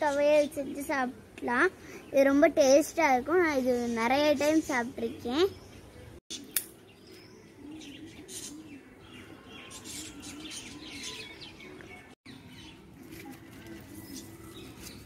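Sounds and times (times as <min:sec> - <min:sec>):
birds chirping: 0:00.0 - 0:15.0
scissors snipping plant stem: 0:06.5 - 0:06.8
dove cooing: 0:07.5 - 0:11.3.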